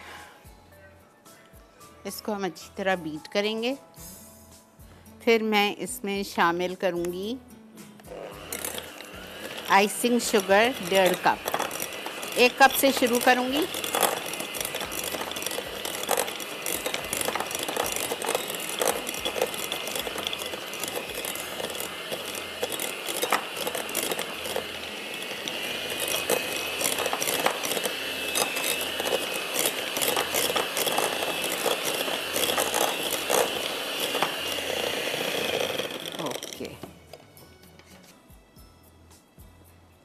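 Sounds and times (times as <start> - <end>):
electric mixer motor whine: 8.0 - 37.2
beaters clattering against bowl: 8.4 - 37.1.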